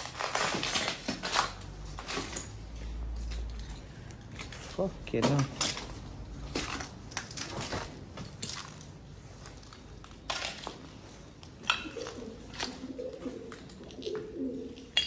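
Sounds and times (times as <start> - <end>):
footsteps crunching over rubble: 4.0 - 12.7.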